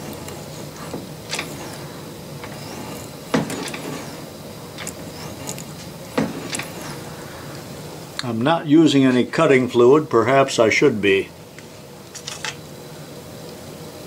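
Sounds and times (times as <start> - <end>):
tool and slide clicking: 0.0 - 7.0
lathe carriage thunking: 0.0 - 7.1.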